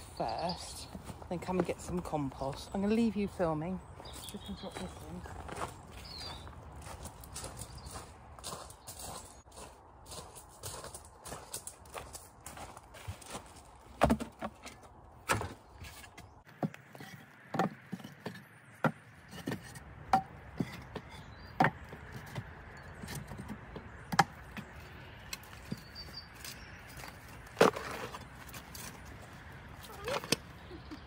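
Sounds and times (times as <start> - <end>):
knocks of wood and garden tools: 13.9 - 25.8.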